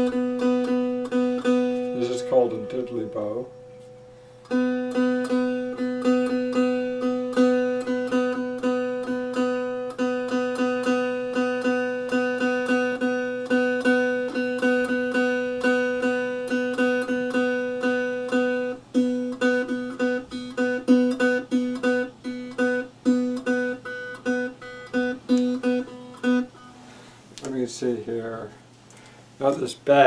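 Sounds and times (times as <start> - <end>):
one-string instrument plucked: 0.0 - 26.7.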